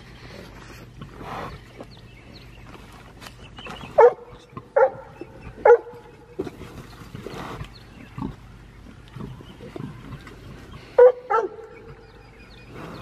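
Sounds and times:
animal barking: 4.0 - 6.2, 10.9 - 12.1.

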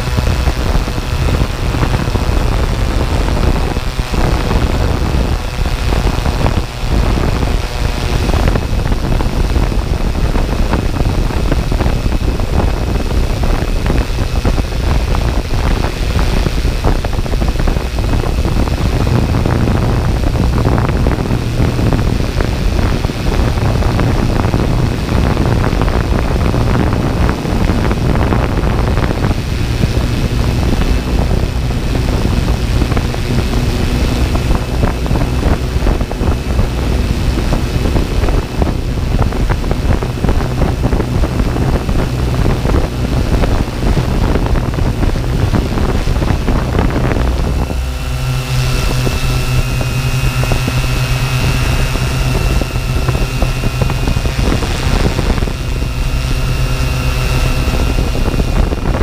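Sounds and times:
drone propellers spinning: 0.0 - 59.0
high-pitched whine: 0.0 - 59.0
wind rumble on microphone: 0.0 - 59.0.

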